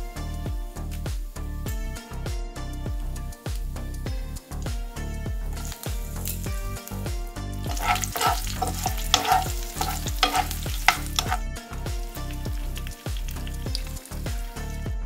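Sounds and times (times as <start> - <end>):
frying in hot oil sizzling: 5.6 - 11.4, 12.0 - 14.7
spoon scraping a pan: 7.6 - 11.4, 12.0 - 14.5.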